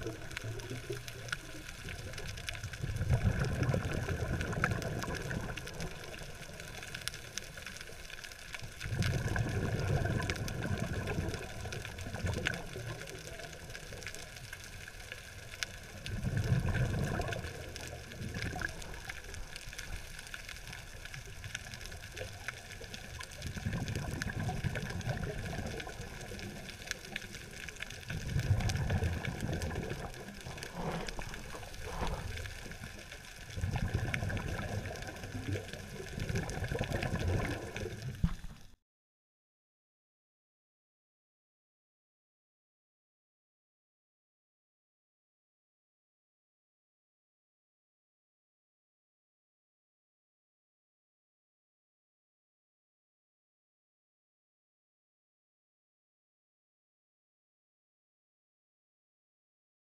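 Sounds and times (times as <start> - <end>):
faint crackle of clicks: 0.0 - 38.8
underwater bubbles gurgling: 0.0 - 38.8.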